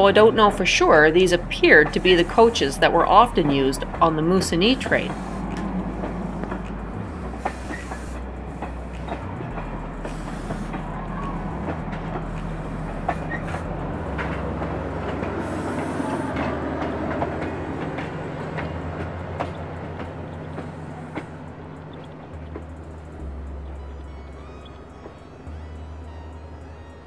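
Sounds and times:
diesel locomotive humming: 0.0 - 27.0
steel rumbling under coaches: 0.0 - 27.0
train wheels clicking over rail joints: 0.0 - 27.0.

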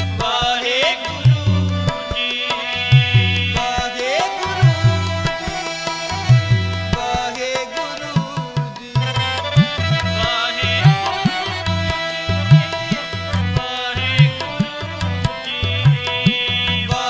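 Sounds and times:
harmonium chords: 0.0 - 17.0
tabla bass strokes: 4.6 - 7.2, 9.4 - 17.0.

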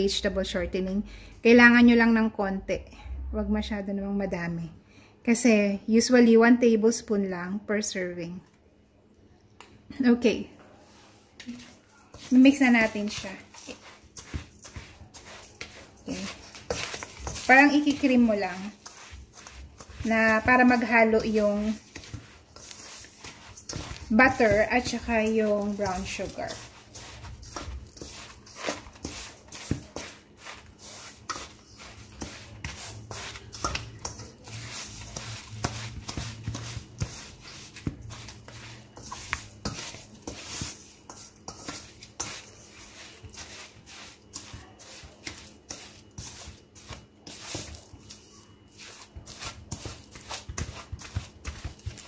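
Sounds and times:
spatula scraping metal bowl: 11.6 - 52.0.

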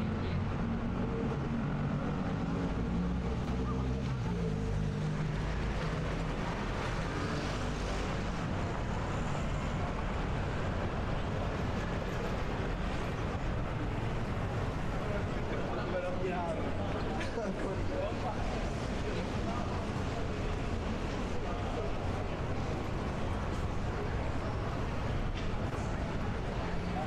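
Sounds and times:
traffic rumble: 0.0 - 27.0
murmur of voices: 9.7 - 27.0.

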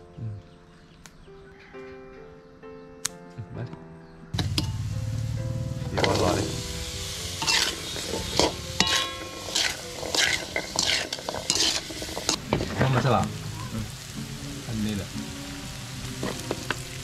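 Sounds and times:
vegetables sizzling in oil: 4.4 - 17.0
metal spoon scraping a wok: 6.0 - 12.4.

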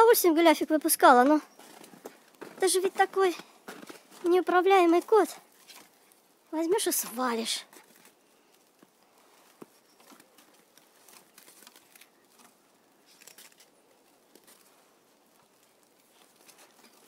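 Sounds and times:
light rustling: 6.9 - 17.0.

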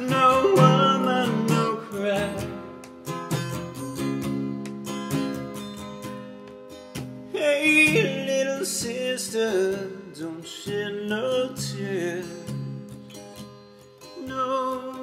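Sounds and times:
man singing: 0.0 - 2.7, 7.3 - 12.8, 14.2 - 15.0
strummed acoustic guitar: 0.0 - 15.0.

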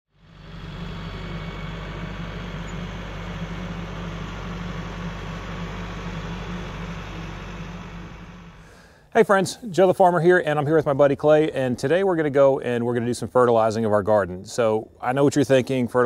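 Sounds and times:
tractor diesel engine running: 0.1 - 9.1
loader dumping dirt: 0.2 - 9.0.

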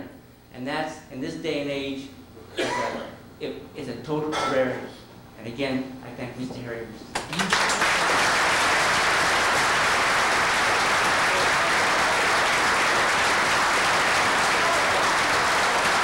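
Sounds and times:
audience applauding: 7.2 - 16.0.

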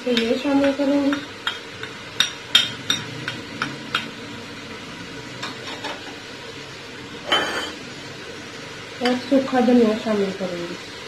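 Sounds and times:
spoon tapping metal pot: 0.0 - 4.1
steady sizzle: 0.0 - 11.0
spoon scraping pot: 7.3 - 7.8.

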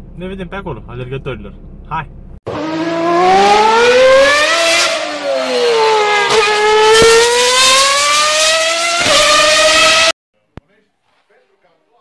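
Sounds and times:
engine revving loudly: 2.5 - 10.2.

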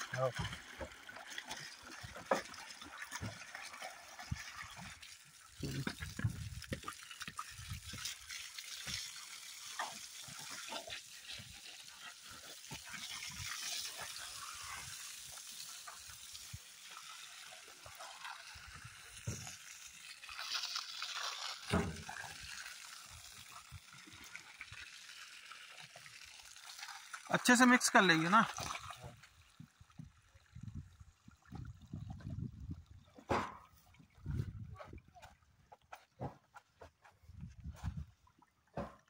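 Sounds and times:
hose water splashing on soil: 0.0 - 39.0.

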